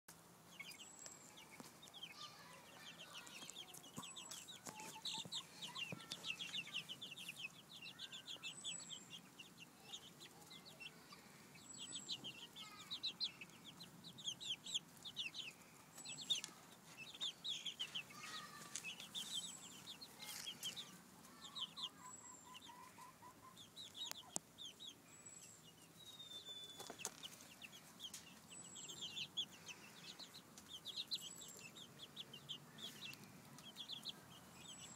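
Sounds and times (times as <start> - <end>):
chicks peeping: 0.1 - 34.9.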